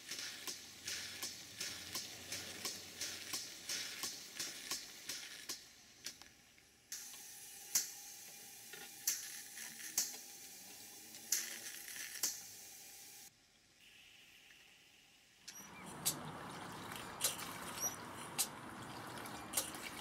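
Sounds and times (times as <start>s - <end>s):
steam hissing: 0.0s - 6.1s, 6.9s - 14.3s.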